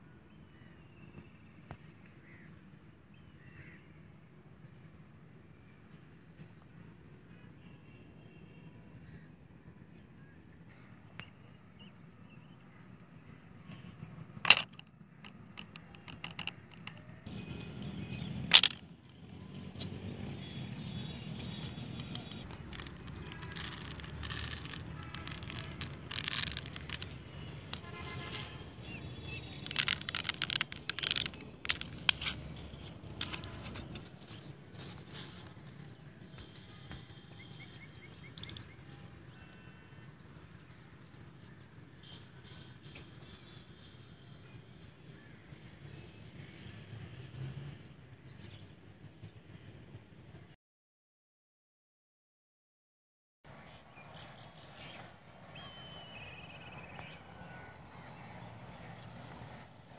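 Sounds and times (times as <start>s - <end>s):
low outdoor background: 0.0s - 50.6s, 53.4s - 59.9s
dry grass and twigs crackling: 20.7s - 36.5s.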